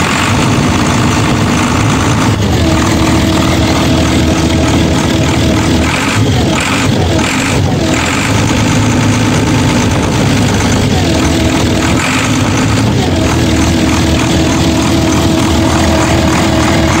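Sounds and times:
diesel engine running: 0.0 - 17.0
higher tone sliding up: 8.5 - 17.0.

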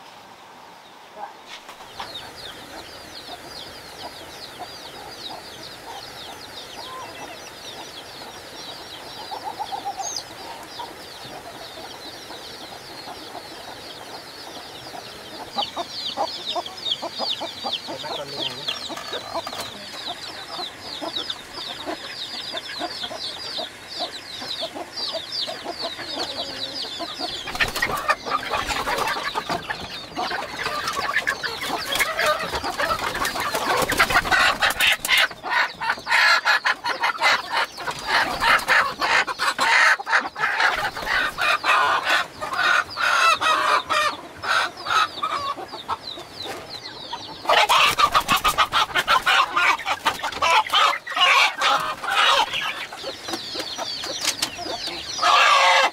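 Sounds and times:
chickens clucking and squawking: 0.0 - 55.9.

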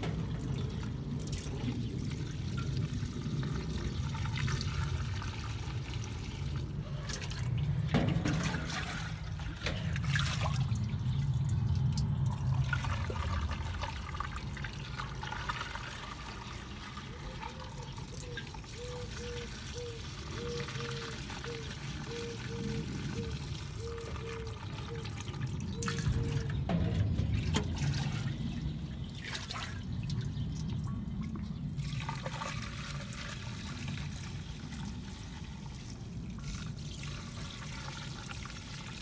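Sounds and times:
steady low rumble: 0.0 - 15.2, 25.4 - 31.8
jug dipped in metal tub: 0.0 - 39.0
oil pouring through funnel: 0.0 - 39.0.

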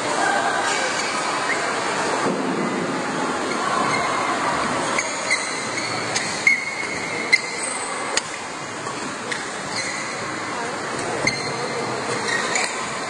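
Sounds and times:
murmur of spectators: 0.0 - 13.0
shoes squeaking on court: 4.8 - 13.0.

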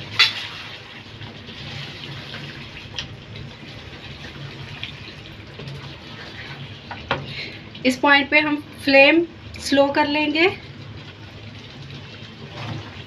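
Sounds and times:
meat sizzling in oil: 0.0 - 8.9.

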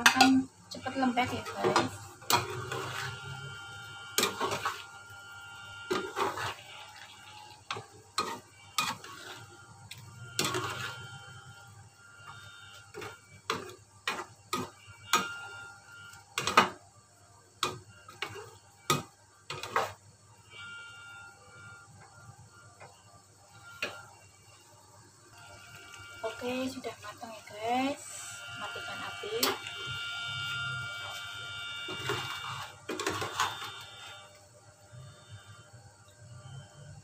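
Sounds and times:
metal spatula scraping frying pan: 0.9 - 11.5.

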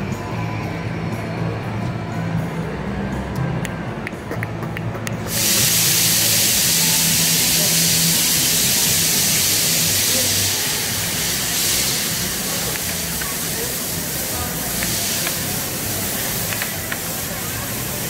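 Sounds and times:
loud steady hiss: 5.2 - 18.0.

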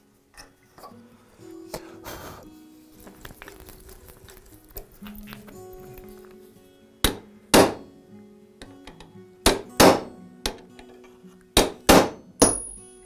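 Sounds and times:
hammer striking steel punch: 7.0 - 7.9, 9.4 - 10.6, 11.6 - 12.8.

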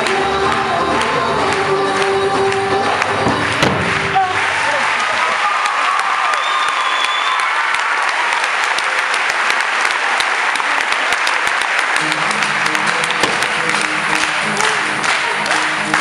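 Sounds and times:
music: 0.0 - 5.1, 11.7 - 16.0
audience clapping: 0.0 - 16.0.

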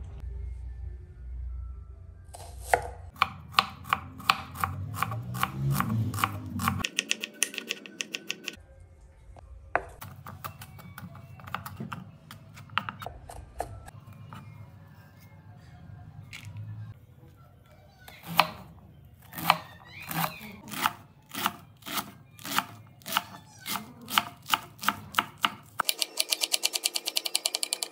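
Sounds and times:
knife chopping on wooden board: 2.4 - 8.6, 18.2 - 18.6, 19.3 - 25.8.

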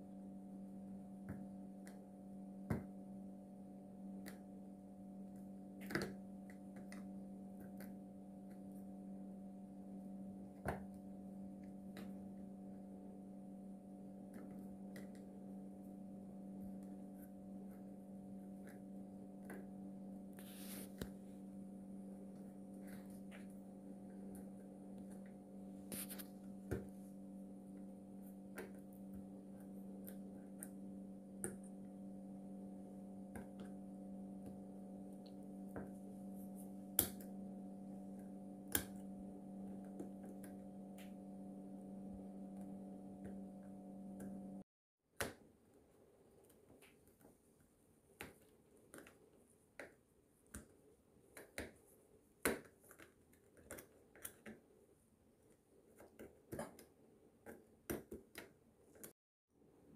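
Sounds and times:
low hum: 6.4 - 44.6.

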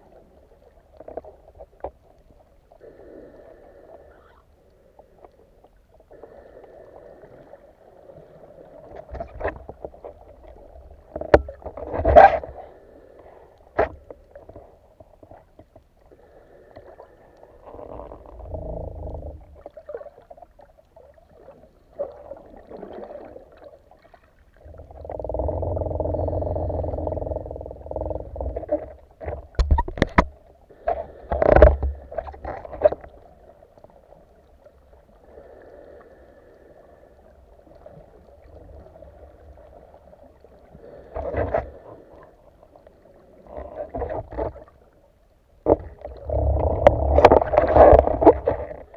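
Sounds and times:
muffled underwater rushing: 16.1 - 48.9.

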